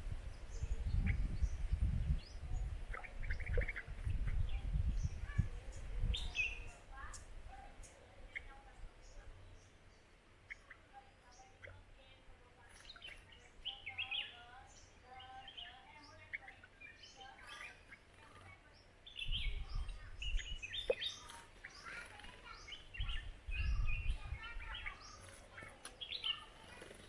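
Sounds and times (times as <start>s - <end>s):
birds chirping: 0.0s - 27.0s.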